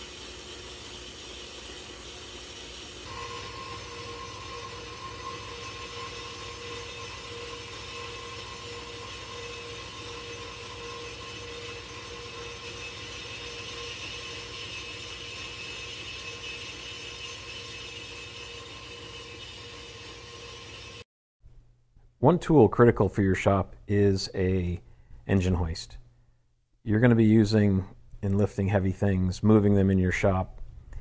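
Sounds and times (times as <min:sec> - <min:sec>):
band saw cutting metal: 0:02.6 - 0:21.0.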